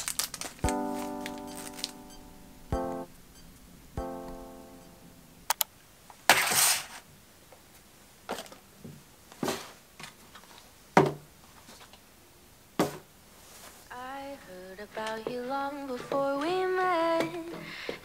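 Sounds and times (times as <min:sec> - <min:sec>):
rustle: 0:13.3 - 0:14.0.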